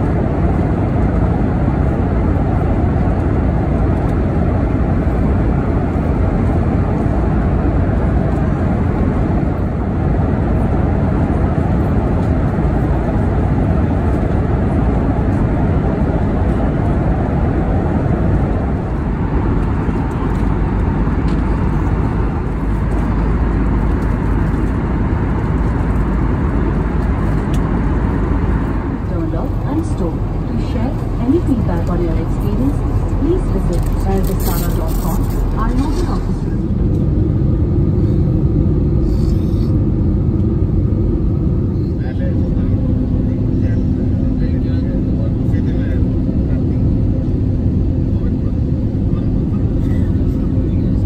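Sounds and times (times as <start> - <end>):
airplane cabin engine rush: 0.0 - 51.0.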